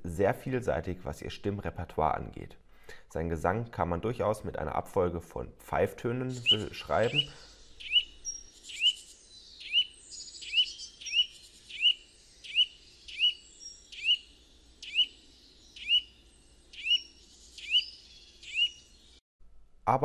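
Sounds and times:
bird singing whistled notes: 6.3s - 19.2s.

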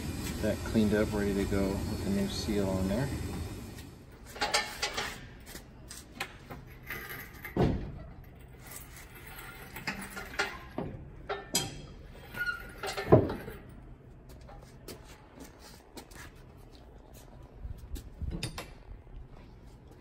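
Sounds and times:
metal clinks and knocks: 6.5s - 13.8s.

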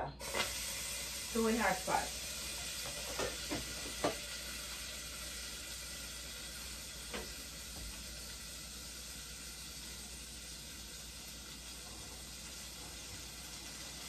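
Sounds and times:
butter sizzling in a pot: 0.0s - 14.0s.

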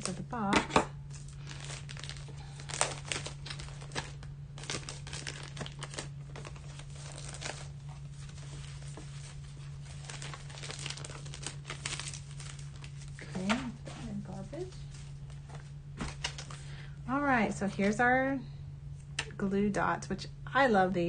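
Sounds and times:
plastic bag crinkling: 1.1s - 16.8s.

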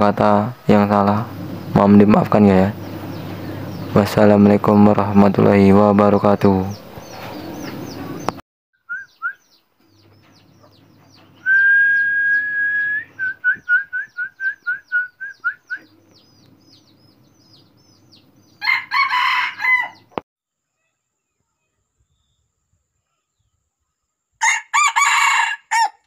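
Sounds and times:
small birds chirping: 0.1s - 24.3s
whistled bird call: 8.8s - 9.6s, 11.4s - 16.0s
rooster crowing: 18.6s - 20.2s, 24.4s - 26.0s.

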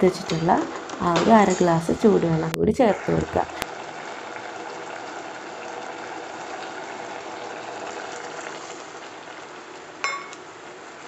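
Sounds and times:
curry simmering in a pot: 3.5s - 11.0s.

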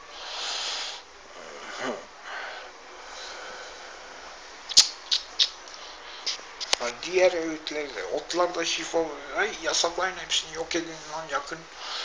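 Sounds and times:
man sniffing: 0.2s - 1.0s
sharp click: 4.7s - 5.6s.

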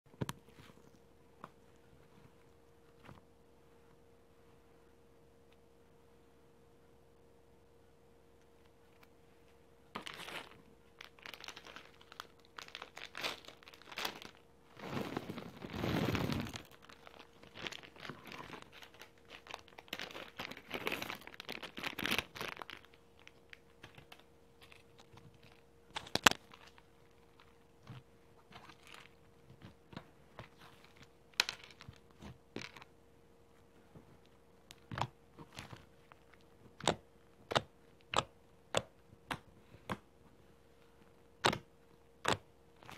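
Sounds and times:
plastic packet crinkling: 10.0s - 27.7s, 28.5s - 29.8s, 30.4s - 32.9s.

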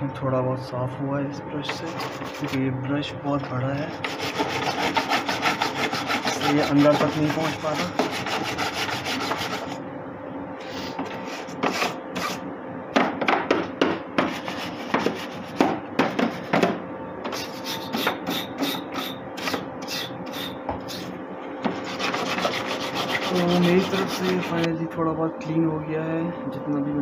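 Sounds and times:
brush scrubbing plastic: 4.0s - 9.8s, 21.8s - 24.7s.

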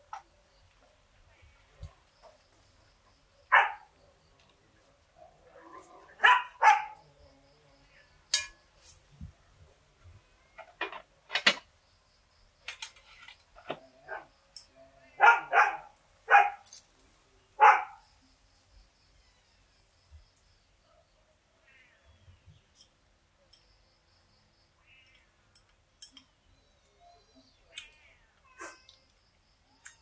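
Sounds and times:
dog barking: 3.5s - 3.9s, 5.2s - 7.1s, 14.0s - 14.3s, 15.2s - 16.6s, 17.6s - 18.0s.

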